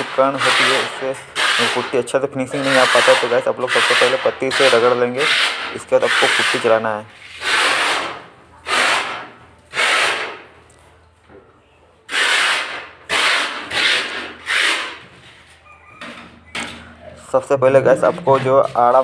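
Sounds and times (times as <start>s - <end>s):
sandpaper rubbing on plaster: 0.0s - 10.4s, 12.1s - 15.6s.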